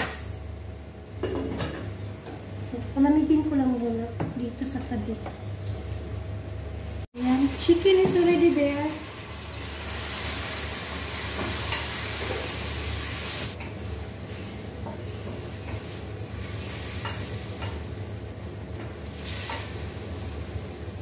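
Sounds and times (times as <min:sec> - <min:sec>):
chicken sizzling in a wok: 0:07.2 - 0:18.4, 0:19.0 - 0:21.0.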